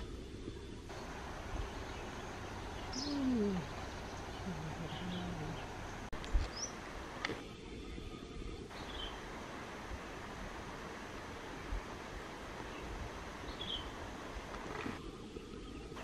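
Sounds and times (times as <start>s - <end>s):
bird cooing: 2.0s - 5.8s.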